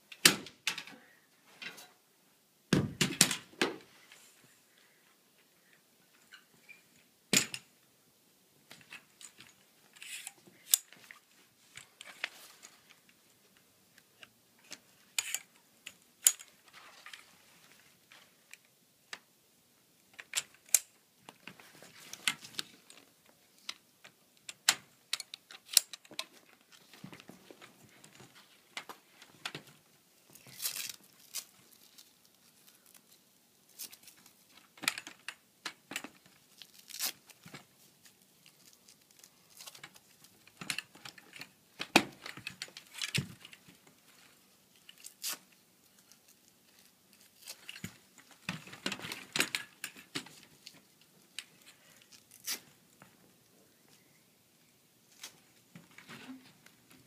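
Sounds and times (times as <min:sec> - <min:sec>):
rustling: 0:08.7 - 0:15.6, 0:25.5 - 0:57.0
frame tubes clicking together: 0:24.4 - 0:26.6.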